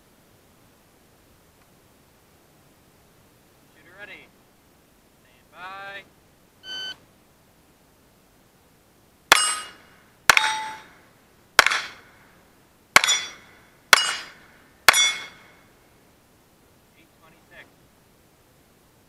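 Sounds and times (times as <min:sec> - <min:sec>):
shot timer electronic beep: 0:06.6 - 0:07.0
steel target plate ringing: 0:09.3 - 0:11.0, 0:11.6 - 0:12.1, 0:13.0 - 0:15.6
pistol shots: 0:11.6 - 0:12.1, 0:13.0 - 0:15.5.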